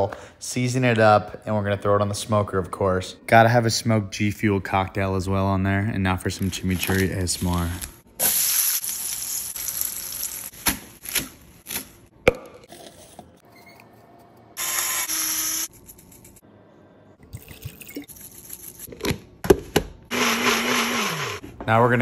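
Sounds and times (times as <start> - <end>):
food sizzling in hot oil: 8.2 - 10.5.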